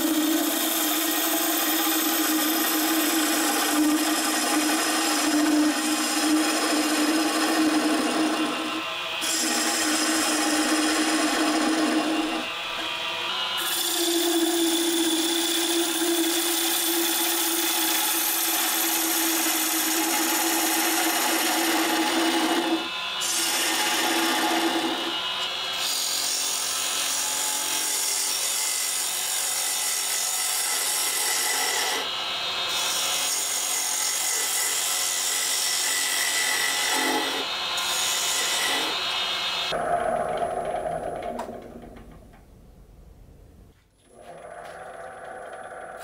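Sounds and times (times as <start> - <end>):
gouge cutting wood on lathe: 0.0 - 32.1, 32.7 - 42.0, 44.2 - 46.0
lathe running: 0.1 - 12.9, 39.7 - 41.9.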